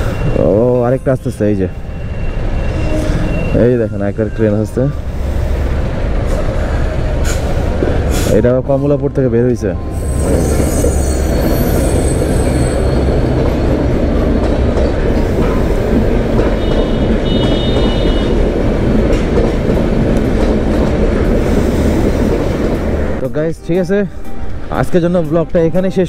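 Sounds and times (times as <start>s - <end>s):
high-pitched squealing: 0.0s - 5.5s, 9.8s - 15.8s
train wheels rumbling on rails: 0.0s - 23.4s.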